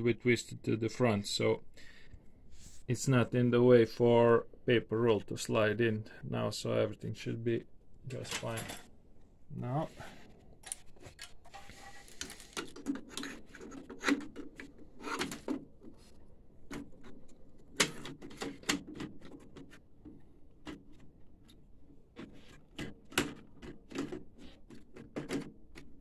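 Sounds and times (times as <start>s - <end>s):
printer parts clicking and knocking: 16.6s - 21.6s, 22.2s - 26.0s.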